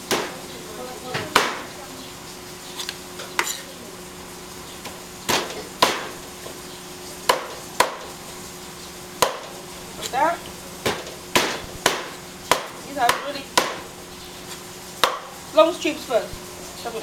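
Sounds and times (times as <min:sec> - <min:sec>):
cleaver chopping on wooden block: 0:01.3 - 0:01.7, 0:05.3 - 0:06.2, 0:07.3 - 0:08.1, 0:09.2 - 0:09.5, 0:10.8 - 0:13.9, 0:15.0 - 0:15.3.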